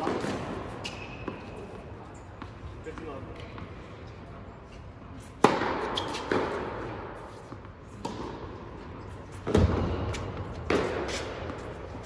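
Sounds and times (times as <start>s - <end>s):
tennis ball bouncing: 5.3s - 12.0s
tennis racket hitting ball: 5.4s - 8.5s, 9.3s - 12.0s.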